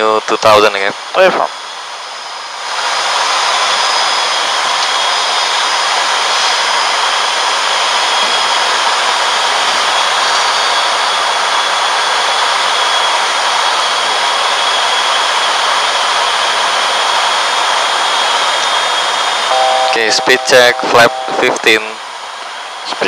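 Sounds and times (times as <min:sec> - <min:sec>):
turboprop cockpit noise: 0:00.0 - 0:23.0
faint high whine: 0:19.3 - 0:23.0.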